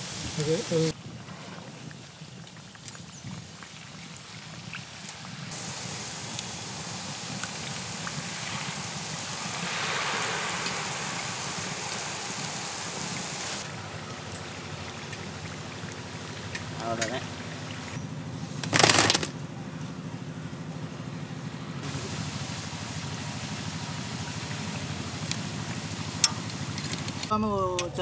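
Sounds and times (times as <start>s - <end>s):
batter sizzling in hot oil: 1.8s - 13.7s, 21.8s - 27.3s.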